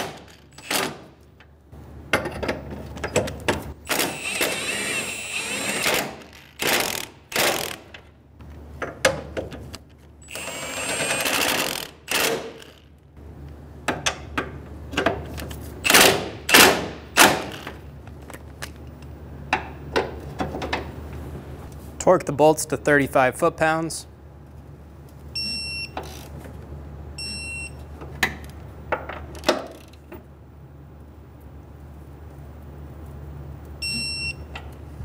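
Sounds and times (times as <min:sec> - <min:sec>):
cordless power tool whirring: 0:03.9 - 0:07.9, 0:10.2 - 0:12.9.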